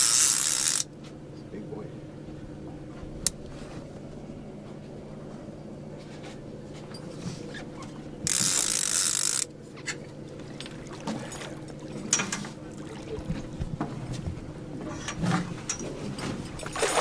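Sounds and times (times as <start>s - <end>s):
boat engine idling: 0.4s - 16.8s.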